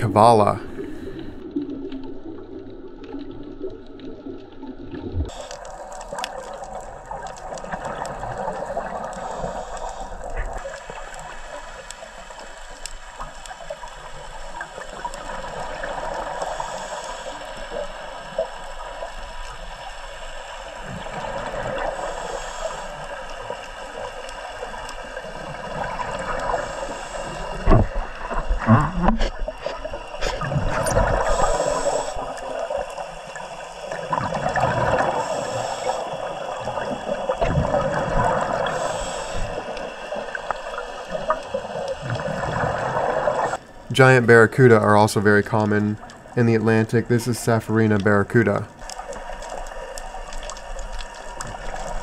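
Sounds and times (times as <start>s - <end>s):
steady underwater hiss: 0.0s - 1.5s, 5.3s - 52.0s
small underwater clicks: 1.1s - 43.9s, 45.6s - 46.4s, 47.9s - 52.0s.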